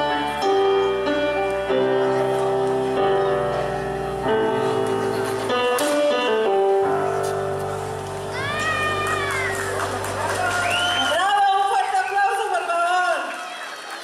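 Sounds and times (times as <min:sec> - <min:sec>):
music with long held chords: 0:00.0 - 0:11.0.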